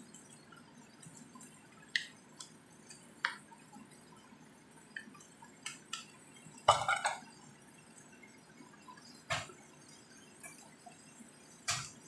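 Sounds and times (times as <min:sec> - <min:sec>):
spatula stirring food in pan: 0:00.0 - 0:12.0
utensils knocking against pan: 0:06.7 - 0:07.2.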